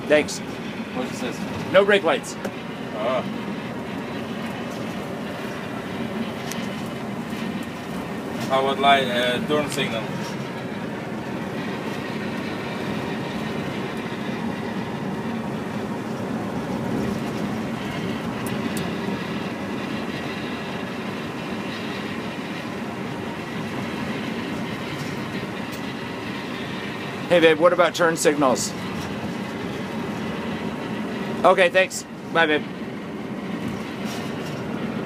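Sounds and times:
diesel engine running: 0:00.0 - 0:35.0
tyre and road noise: 0:00.0 - 0:35.0.

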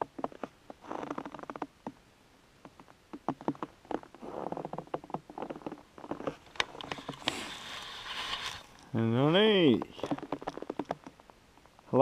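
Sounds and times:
rustle: 0:00.0 - 0:12.0
footsteps crunching in frozen snow: 0:05.3 - 0:10.8.

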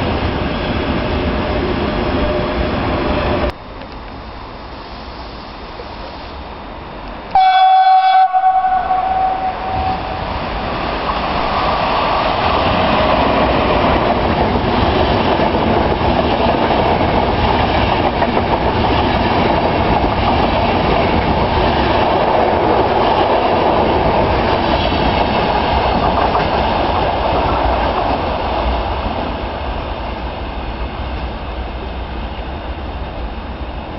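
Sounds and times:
train wheels rushing on rail: 0:00.0 - 0:33.9
train horn blast: 0:07.3 - 0:10.2.

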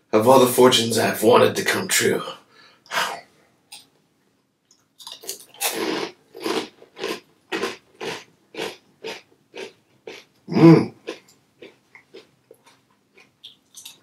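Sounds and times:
crunchy chewing of cookie: 0:05.0 - 0:10.3, 0:10.9 - 0:14.0.

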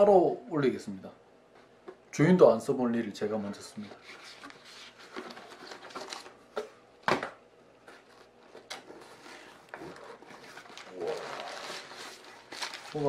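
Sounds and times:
paper and cardboard rustling: 0:03.6 - 0:06.7, 0:07.8 - 0:13.0.

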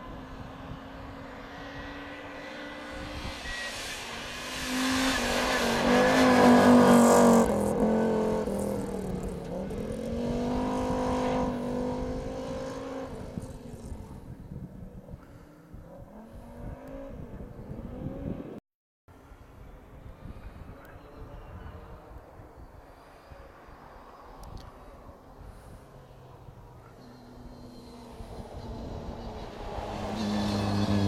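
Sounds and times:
rally car engine passing: 0:00.0 - 0:14.4, 0:23.5 - 0:31.0.

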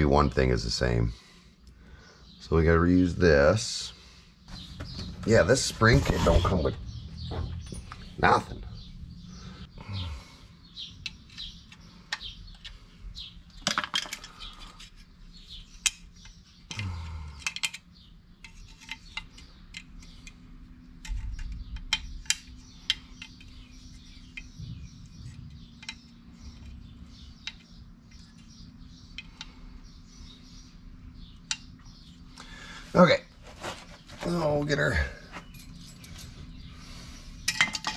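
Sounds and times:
metal brake parts clinking: 0:35.3 - 0:36.4, 0:37.4 - 0:37.9.

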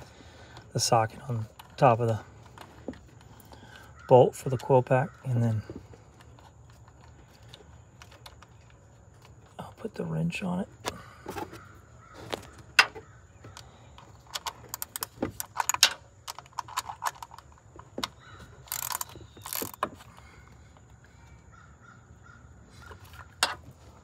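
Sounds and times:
small ratchet clicking: 0:18.6 - 0:19.8.

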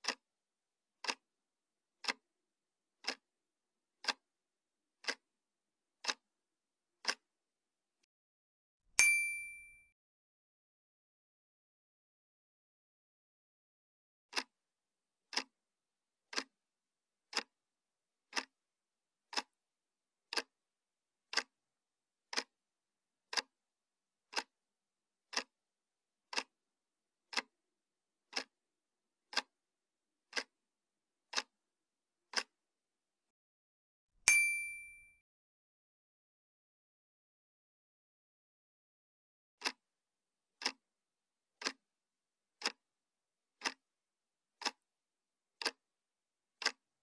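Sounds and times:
clock ticking: 0:00.0 - 0:00.3, 0:01.0 - 0:01.3, 0:02.0 - 0:02.3, 0:03.0 - 0:03.3, 0:04.0 - 0:04.3, 0:05.0 - 0:05.3, 0:06.0 - 0:06.3, 0:07.0 - 0:07.3, 0:14.3 - 0:14.6, 0:15.3 - 0:15.6, 0:16.3 - 0:16.6, 0:17.3 - 0:17.6, 0:18.3 - 0:18.6, 0:19.3 - 0:19.6, 0:20.3 - 0:20.6, 0:21.3 - 0:21.6, 0:22.3 - 0:22.6, 0:23.3 - 0:23.6, 0:24.3 - 0:24.6, 0:25.3 - 0:25.6, 0:26.3 - 0:26.6, 0:27.3 - 0:27.6, 0:28.3 - 0:28.6, 0:29.3 - 0:29.6, 0:30.3 - 0:30.6, 0:31.3 - 0:31.6, 0:32.3 - 0:32.6, 0:39.6 - 0:39.8, 0:40.6 - 0:40.8, 0:41.6 - 0:41.8, 0:42.6 - 0:42.8, 0:43.6 - 0:43.9, 0:44.6 - 0:44.8, 0:45.6 - 0:45.8, 0:46.5 - 0:47.0
bright ding: 0:09.0 - 0:09.9, 0:34.3 - 0:35.2.

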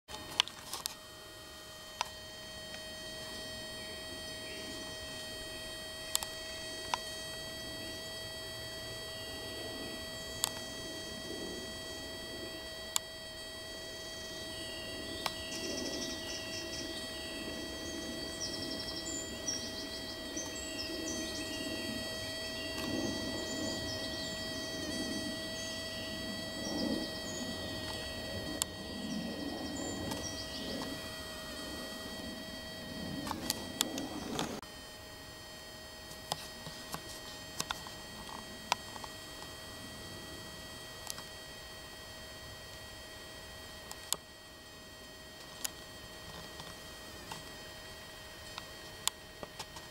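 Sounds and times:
hoverfly high-pitched whine: 0:00.1 - 0:49.9
faint bird chirps: 0:13.8 - 0:32.8.

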